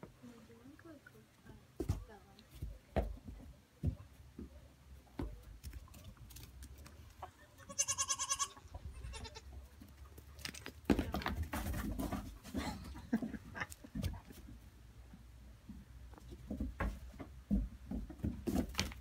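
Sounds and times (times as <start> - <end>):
baby goat bleating: 7.6 - 9.5
rustling and scuffling: 9.4 - 14.7, 15.6 - 19.0.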